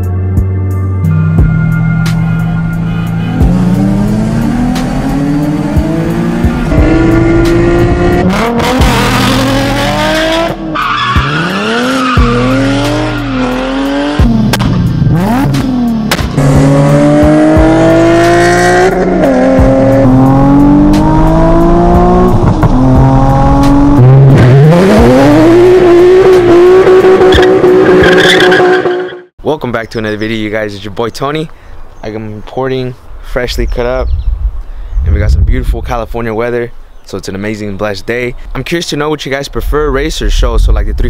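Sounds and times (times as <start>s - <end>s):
sports car engines accelerating: 2.0s - 28.8s.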